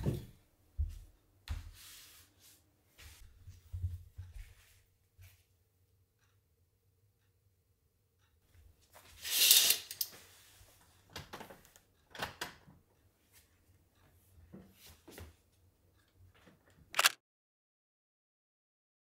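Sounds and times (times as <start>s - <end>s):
footsteps: 0.0s - 2.2s, 2.9s - 5.5s.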